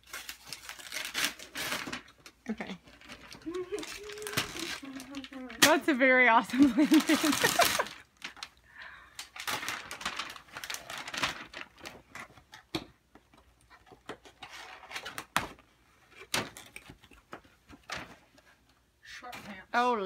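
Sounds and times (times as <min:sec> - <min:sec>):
wrapping paper tearing: 0:00.0 - 0:05.9, 0:06.6 - 0:08.5, 0:09.2 - 0:12.1.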